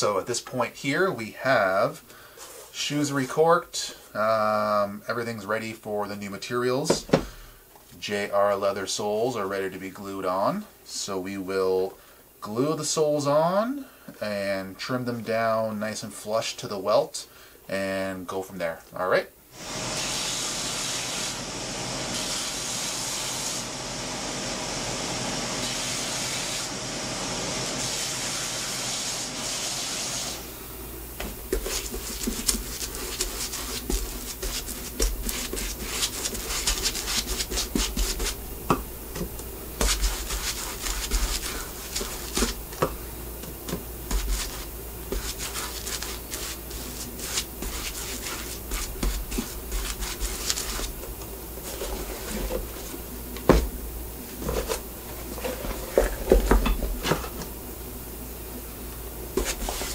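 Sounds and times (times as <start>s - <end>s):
steady hiss: 27.6s - 59.9s.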